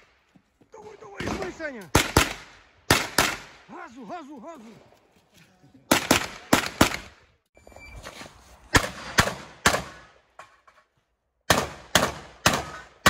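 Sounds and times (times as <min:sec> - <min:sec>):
rifle gunshots cracking: 0:01.2 - 0:03.7, 0:05.9 - 0:07.2.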